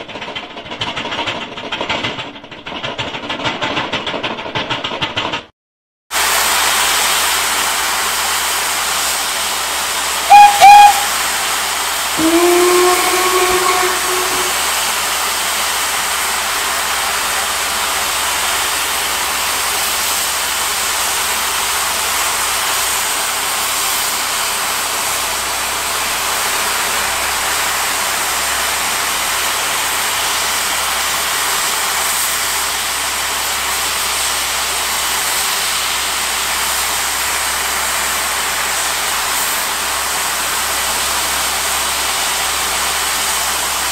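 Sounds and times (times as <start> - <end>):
steam locomotive hissing: 6.4 - 15.1
lower swooping whistle: 10.3 - 11.3, 12.2 - 14.7
high whistle toots: 10.3 - 11.5, 12.2 - 14.7.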